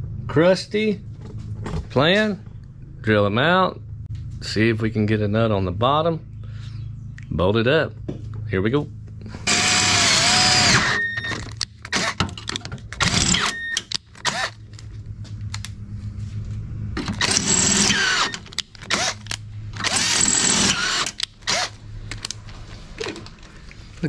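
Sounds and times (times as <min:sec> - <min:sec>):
drill motor whine: 0:09.4 - 0:12.2, 0:13.0 - 0:14.6, 0:17.0 - 0:19.2, 0:19.8 - 0:21.8
handling clicks and knocks: 0:11.2 - 0:15.7, 0:18.3 - 0:19.9, 0:21.1 - 0:23.9.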